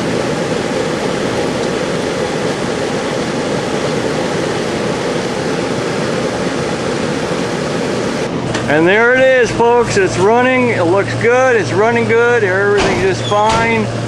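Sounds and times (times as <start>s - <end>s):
air conditioner fan rushing: 0.0s - 14.0s
compressor hum: 0.0s - 14.0s.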